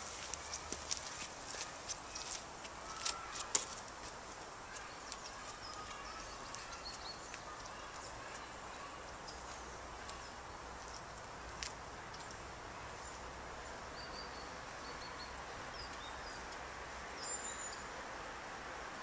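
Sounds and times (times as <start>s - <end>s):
footsteps on gravel: 0.0s - 8.5s
small birds chirping: 0.0s - 18.0s
outdoor hiss: 0.0s - 19.0s.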